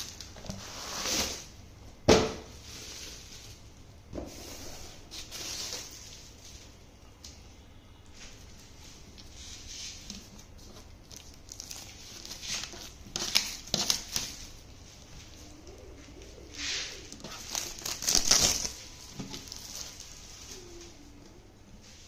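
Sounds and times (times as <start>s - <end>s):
plastic wrap crinkling: 8.5s - 21.3s.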